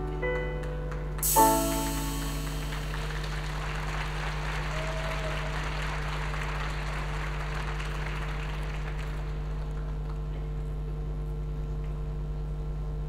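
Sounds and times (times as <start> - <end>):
low electrical hum: 0.0 - 13.0
audience applause: 0.6 - 10.3.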